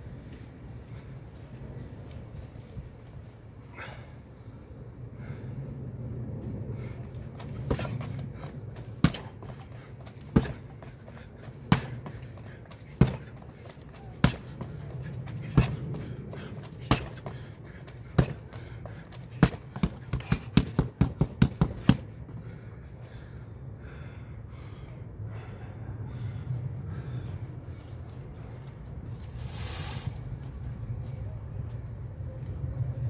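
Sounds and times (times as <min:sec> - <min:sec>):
punches thudding on heavy bag: 0:09.0 - 0:09.6, 0:10.3 - 0:10.7, 0:11.7 - 0:12.2, 0:13.0 - 0:13.3, 0:14.2 - 0:14.5, 0:16.8 - 0:17.2, 0:18.2 - 0:18.4, 0:19.4 - 0:22.0.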